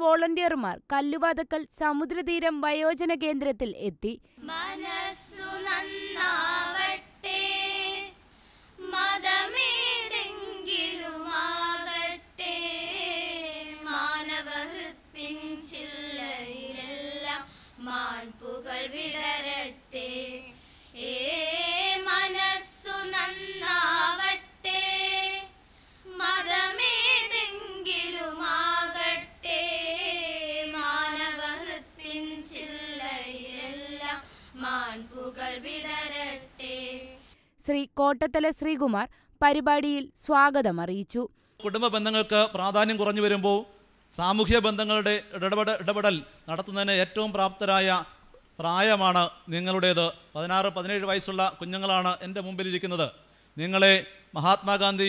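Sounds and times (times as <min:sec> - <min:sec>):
girls singing in unison: 0:04.4 - 0:37.4.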